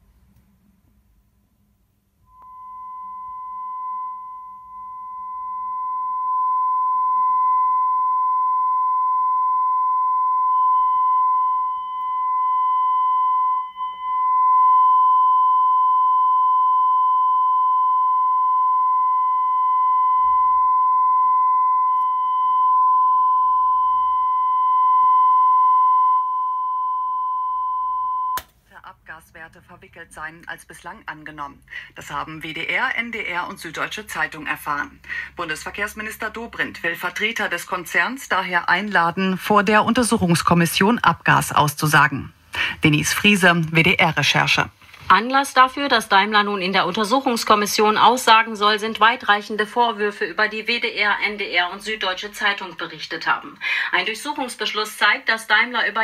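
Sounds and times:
loudspeaker test tone: 2.3 - 28.4.

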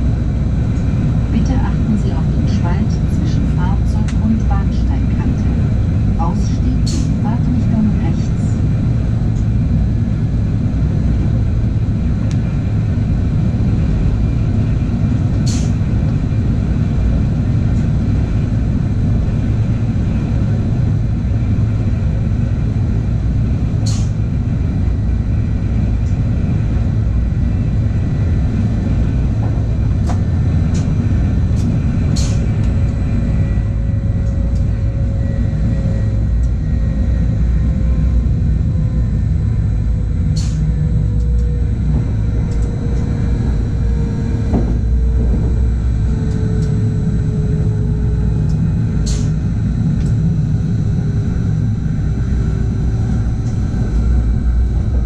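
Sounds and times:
train rumbling: 0.0 - 55.0
faint whine dropping in pitch: 20.4 - 55.0.

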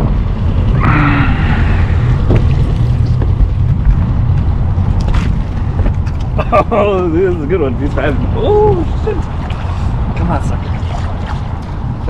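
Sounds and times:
wind buffeting the microphone: 0.0 - 12.0.

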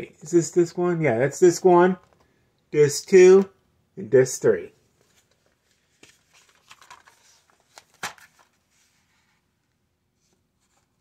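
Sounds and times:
plastic case rustling: 5.0 - 8.7.

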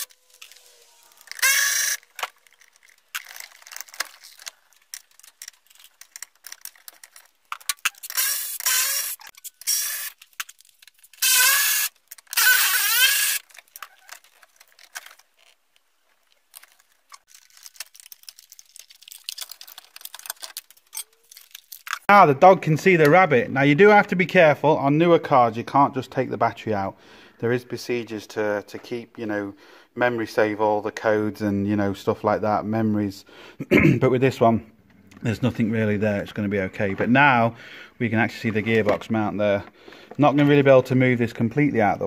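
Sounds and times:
electric ratchet whirring: 0.0 - 2.4, 7.7 - 10.2, 11.2 - 13.5.

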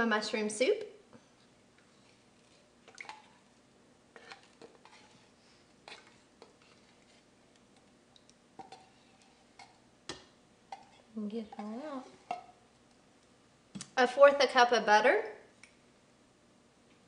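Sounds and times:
spatula scraping a tin can: 4.2 - 7.3.

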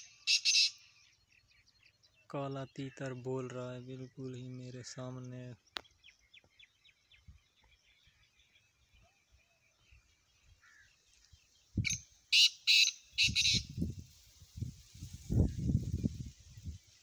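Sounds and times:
bird calling harsh grating notes: 0.0 - 0.9, 11.9 - 13.8.

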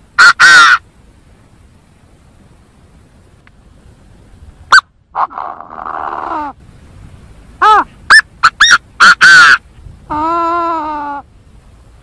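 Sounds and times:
game bird harsh calls: 8.1 - 9.6.

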